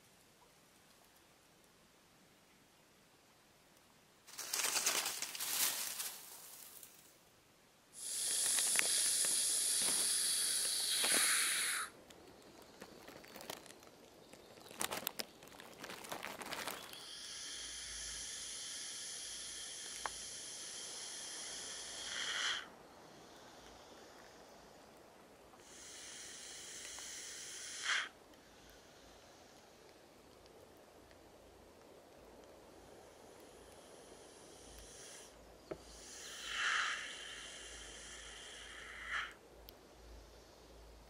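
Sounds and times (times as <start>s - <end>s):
rustling in dry leaves: 4.2s - 7.3s, 8.0s - 22.8s
snake hissing: 8.0s - 12.0s, 16.8s - 24.9s, 25.6s - 29.9s, 32.7s - 40.9s.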